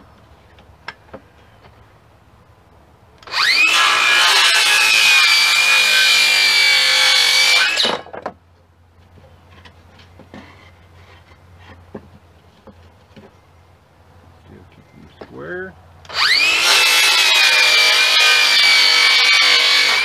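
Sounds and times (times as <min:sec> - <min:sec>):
electric saw cutting wood: 0:03.2 - 0:08.1, 0:16.1 - 0:20.0.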